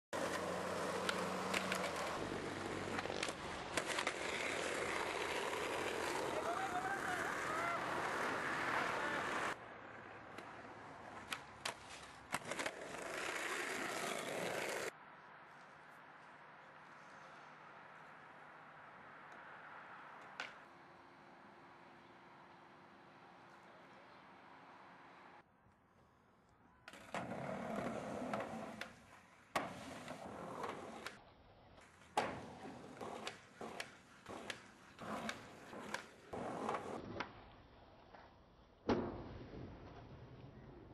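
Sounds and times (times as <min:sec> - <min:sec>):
skateboard clacks: 0:00.2 - 0:09.6, 0:31.8 - 0:37.3
skateboard wheels rolling on asphalt: 0:00.2 - 0:26.2, 0:26.9 - 0:38.7.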